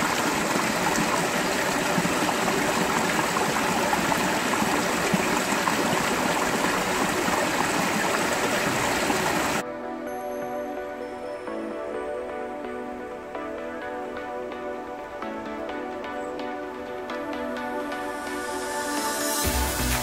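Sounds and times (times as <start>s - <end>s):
stream splashing into a pool: 0.0s - 9.6s.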